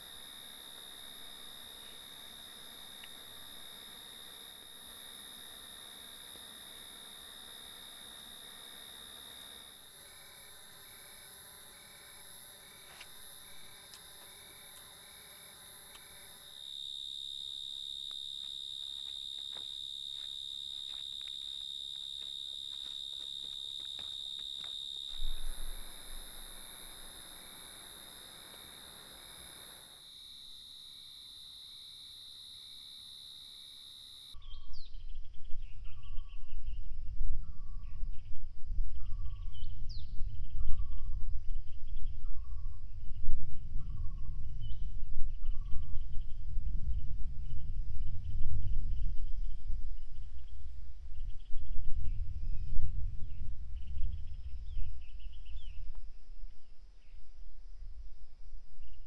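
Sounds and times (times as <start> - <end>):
insects trilling: 0.0 - 34.9
wind gusting on microphone: 41.9 - 55.9.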